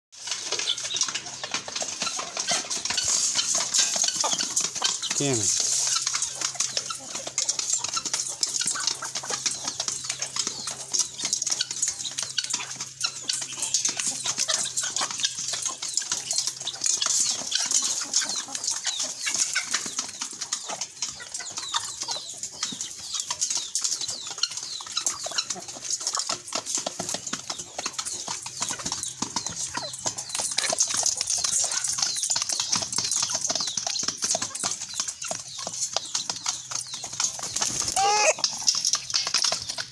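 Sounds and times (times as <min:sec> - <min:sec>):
chickens clucking: 0:00.2 - 0:39.9
chickens pecking: 0:00.2 - 0:39.9.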